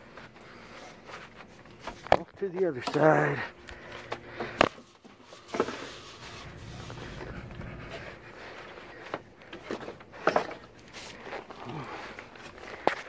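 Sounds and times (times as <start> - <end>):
insulation rustling: 5.7 - 8.7.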